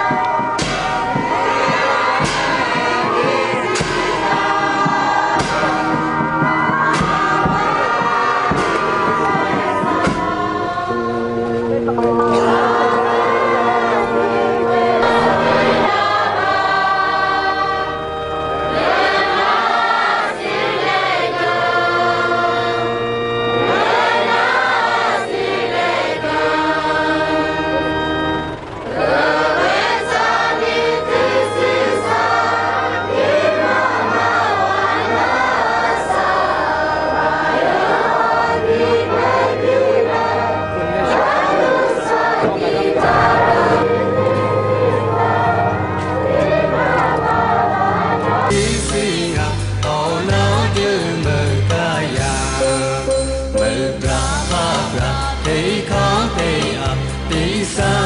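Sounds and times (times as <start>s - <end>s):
held low notes: 0.0s - 55.3s
group singing slow song: 0.0s - 58.0s.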